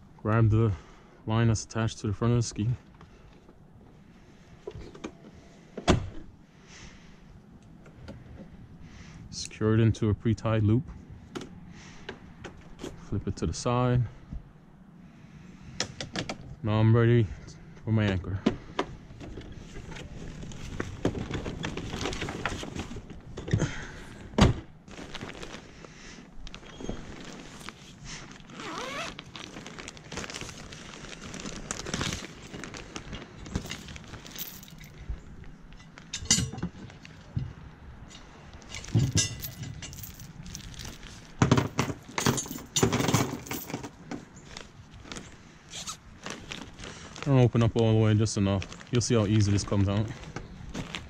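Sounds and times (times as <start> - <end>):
handling rustle: 19.2 - 23.5, 24.8 - 51.0
metal chain clinking and rattling: 32.1 - 35.1, 35.8 - 36.7, 38.1 - 44.0.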